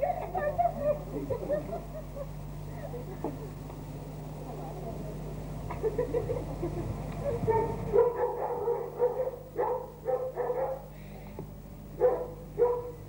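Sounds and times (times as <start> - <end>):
dog barking: 7.4 - 10.9, 12.0 - 13.0.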